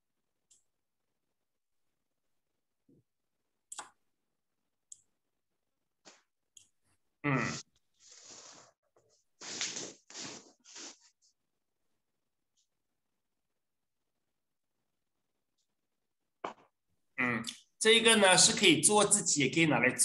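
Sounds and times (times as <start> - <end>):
breathy rustling noises: 7.5 - 11.4.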